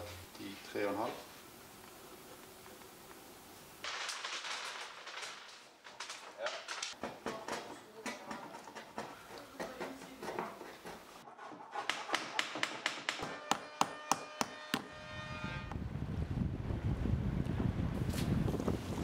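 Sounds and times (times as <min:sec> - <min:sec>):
hammer striking wooden hull: 0:11.8 - 0:14.9
wind noise: 0:15.0 - 0:19.0.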